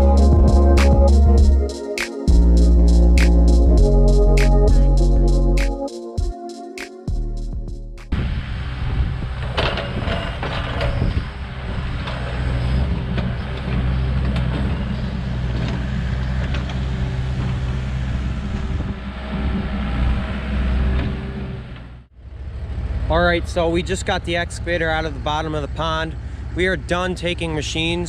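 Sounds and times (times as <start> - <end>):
excavator diesel engine running: 8.2 - 28.0.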